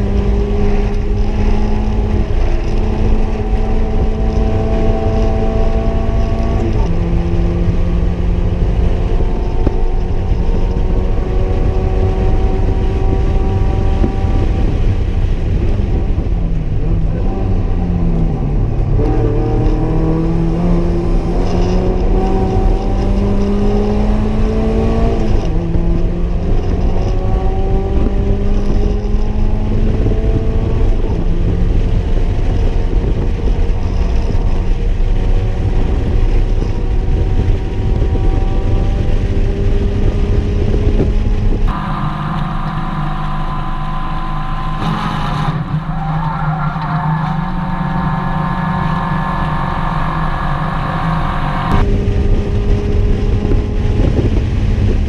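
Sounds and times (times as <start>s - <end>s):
car engine revving: 0.0s - 55.0s
road and tyre rumble: 0.0s - 55.0s.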